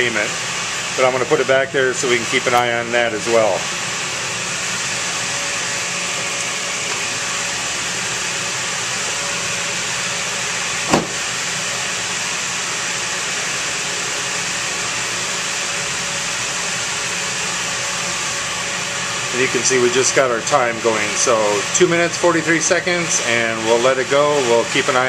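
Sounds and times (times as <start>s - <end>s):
dehumidifier humming: 0.0s - 25.0s
short thump: 10.9s - 11.2s.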